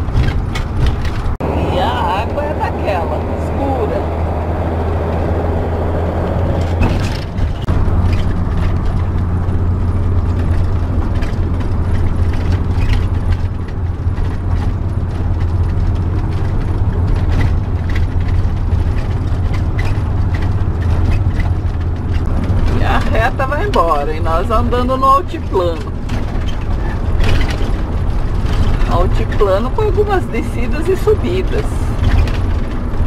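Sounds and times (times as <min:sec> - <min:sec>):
clicks and rattles: 0:00.0 - 0:01.4, 0:06.6 - 0:24.5, 0:25.4 - 0:30.0, 0:30.9 - 0:33.0
vehicle engine and road drone: 0:00.0 - 0:33.0.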